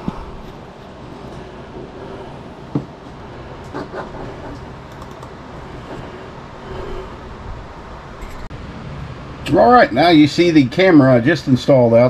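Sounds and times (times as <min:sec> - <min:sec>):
low hum: 0:00.0 - 0:11.6
computer mouse clicks: 0:04.4 - 0:05.3.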